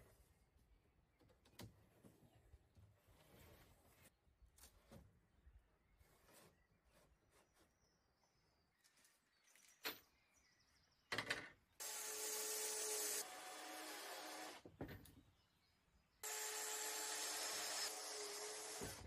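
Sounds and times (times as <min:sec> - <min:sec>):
cordless drill whining: 0:16.2 - 0:19.0.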